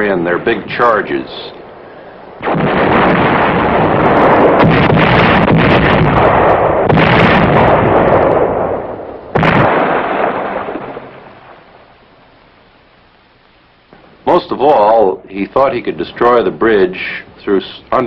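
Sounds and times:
shells bursting: 0.0s - 17.3s
artillery firing: 2.4s - 11.9s.

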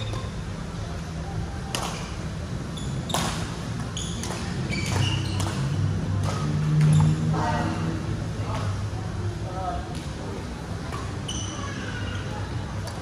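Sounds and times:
shoes squeaking on court floor: 2.7s - 5.7s, 6.8s - 7.3s, 11.2s - 11.7s.

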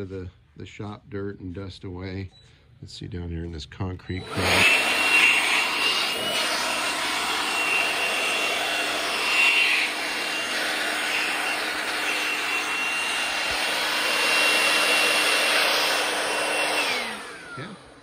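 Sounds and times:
cordless blower running: 4.2s - 18.0s.

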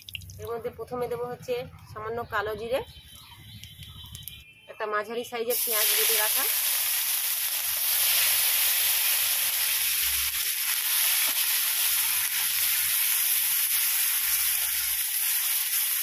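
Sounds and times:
onion paste sizzling in oil: 5.5s - 16.0s.

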